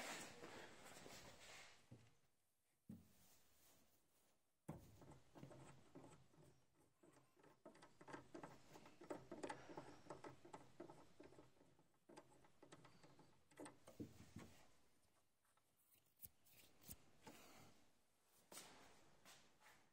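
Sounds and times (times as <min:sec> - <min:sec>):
rustling and clicks of wiring: 0:05.0 - 0:17.4.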